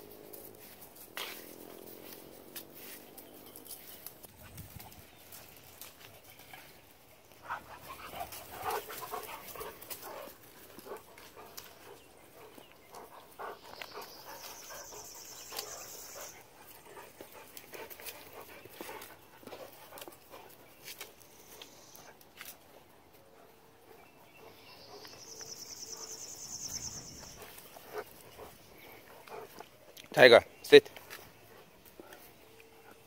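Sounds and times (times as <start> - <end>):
crackling of dry leaves: 0.0 - 7.4
dog panting: 7.3 - 25.2, 27.2 - 30.0, 31.0 - 33.0.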